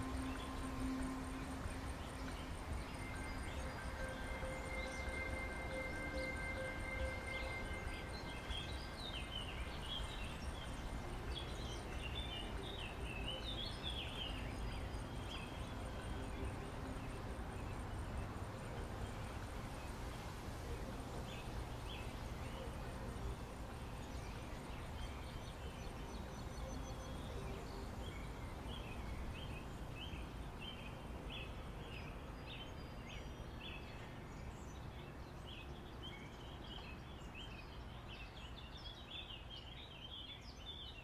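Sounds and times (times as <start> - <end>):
low wind rumble: 0.0 - 40.6
faint steady whine: 0.0 - 41.0.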